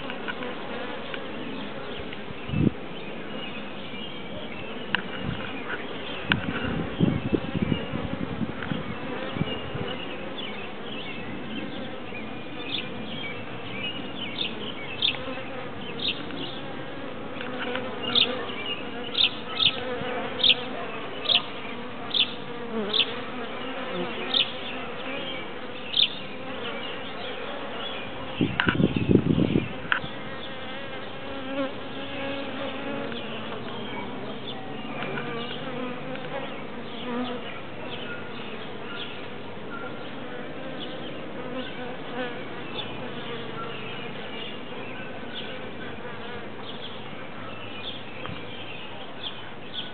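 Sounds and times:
honeybee swarm buzzing: 0:05.4 - 0:38.8.

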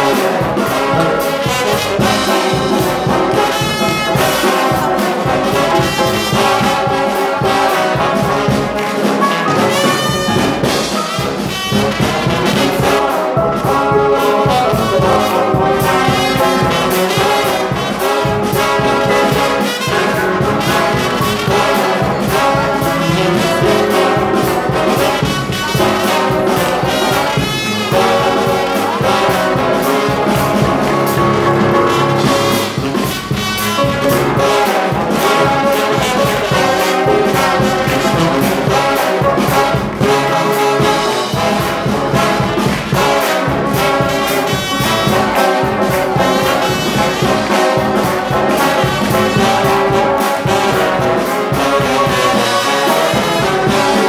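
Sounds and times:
brass band playing: 0:00.0 - 0:54.0.

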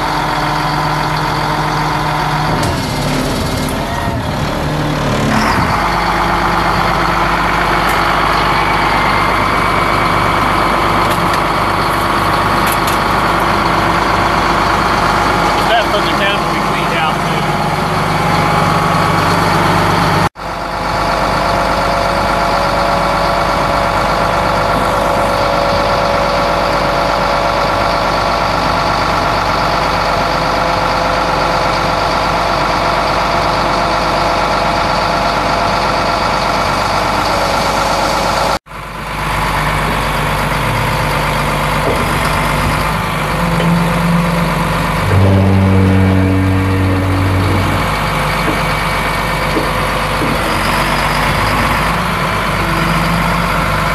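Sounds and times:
heavy truck engine idling: 0:00.0 - 0:53.9.

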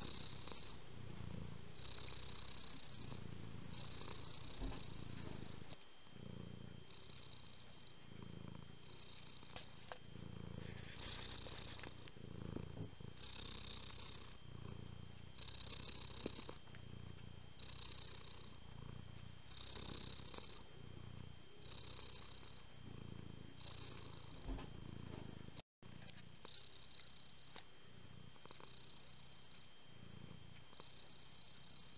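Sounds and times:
cat purring: 0:00.0 - 0:31.9.

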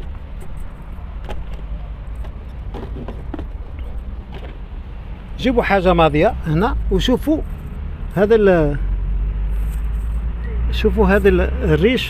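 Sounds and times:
rubber hose knocks and rubs: 0:01.2 - 0:04.6.

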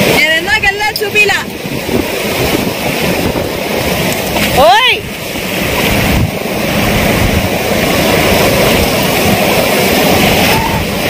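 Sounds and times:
surf breaking on shore: 0:00.0 - 0:11.0
wind buffeting microphone: 0:00.0 - 0:11.0.

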